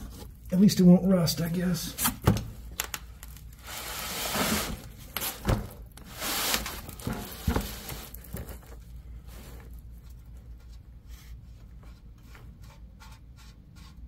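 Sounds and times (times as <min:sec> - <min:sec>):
rustling and scraping: 0:03.2 - 0:14.0.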